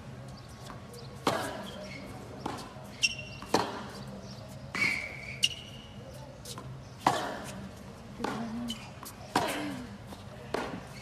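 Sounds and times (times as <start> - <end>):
tennis balls struck by rackets: 0.6 - 5.5, 6.5 - 11.0
shoe squeaks on court: 0.6 - 6.7, 8.4 - 9.4.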